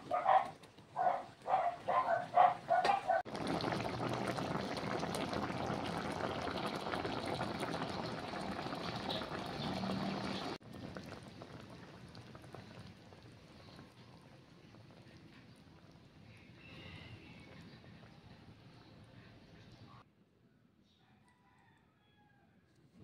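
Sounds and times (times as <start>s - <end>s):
sauce bubbling in a pan: 3.0s - 18.1s.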